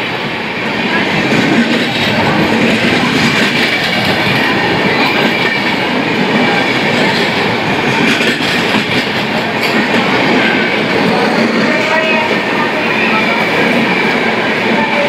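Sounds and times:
train wheels rumbling on rails: 0.0 - 15.0
wheels clacking over rail joints: 1.2 - 12.0.

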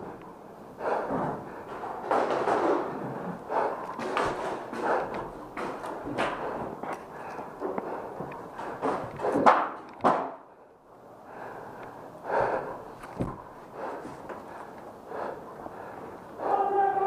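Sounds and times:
heavy breathing: 0.0 - 9.7, 10.4 - 17.0
scuffing footsteps: 0.8 - 9.6.

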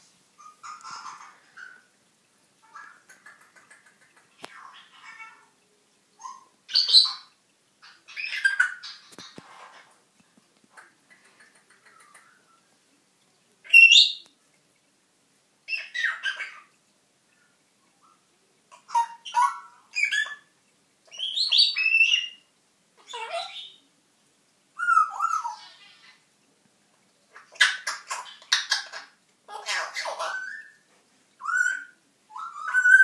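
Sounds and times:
parrot whistling and squawking: 6.2 - 9.0, 15.7 - 16.7, 18.8 - 20.5, 24.8 - 26.2, 27.4 - 30.8, 31.4 - 33.0.

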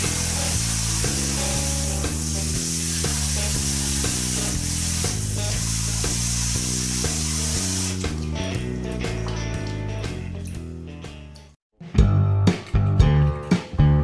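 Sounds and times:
loud steady hiss: 0.0 - 8.0
background music: 0.0 - 14.0.

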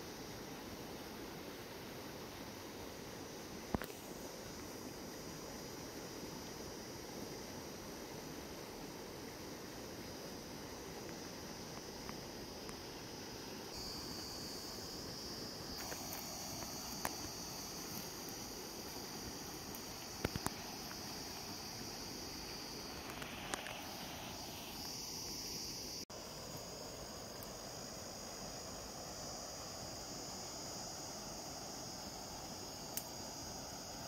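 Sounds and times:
crickets droning: 0.0 - 34.0.

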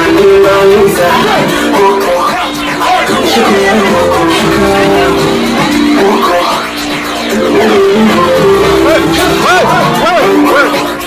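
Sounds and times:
loud dj music through speakers: 0.0 - 11.0.

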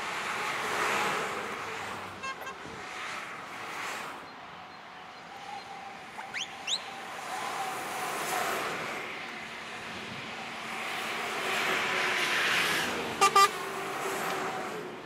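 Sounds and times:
trucks passing: 0.0 - 15.0
truck air horn blasts: 2.2 - 2.8, 13.2 - 13.8.

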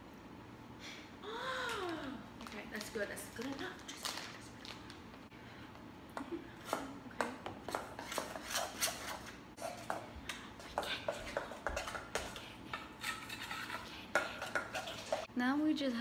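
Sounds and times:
utensil scraping metal bowl: 7.6 - 15.3.

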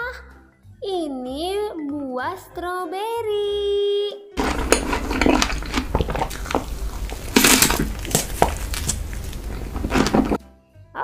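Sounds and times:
man chewing wet crunches: 4.4 - 10.4.

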